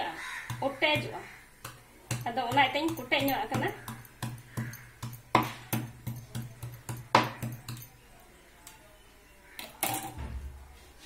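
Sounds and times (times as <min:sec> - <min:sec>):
knife chopping on wooden board: 0:00.4 - 0:07.8.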